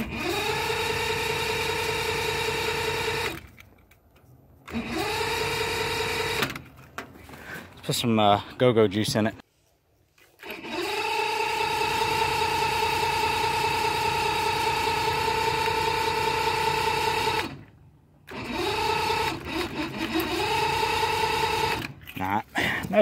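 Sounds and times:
electric starter motor whining: 0.0s - 3.6s, 4.6s - 6.7s, 10.4s - 22.0s.

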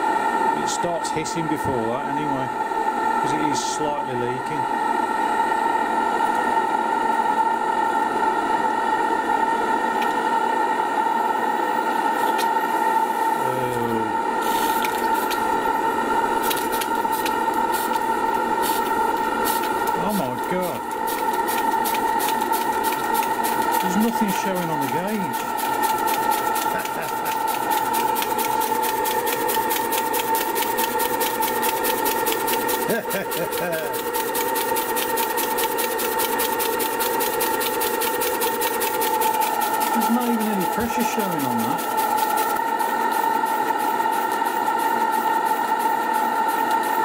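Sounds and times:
gas torch burner hissing: 9.8s - 47.0s
butane torch hissing: 12.2s - 28.2s.

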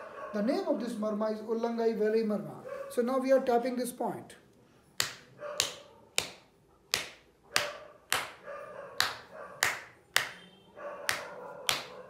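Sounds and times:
palm slapping bare foot: 5.0s - 8.4s, 9.0s - 10.4s, 11.1s - 12.0s.

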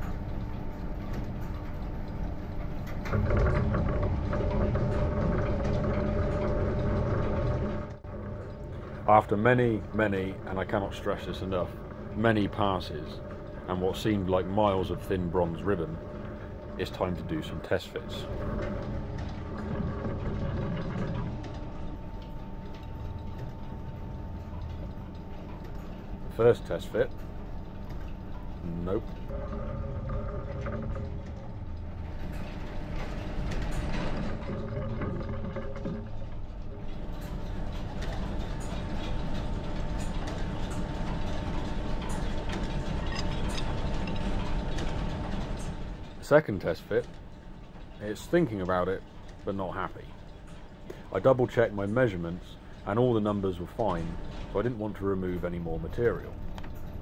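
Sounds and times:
belt-driven machine hum: 0.0s - 57.0s.

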